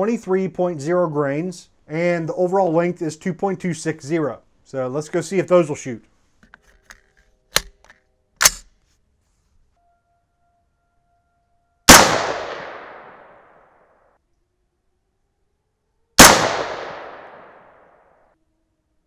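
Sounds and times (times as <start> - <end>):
sharp mechanical clicks: 6.9 - 8.7
rifle shot with echo: 11.9 - 13.6, 16.2 - 18.0.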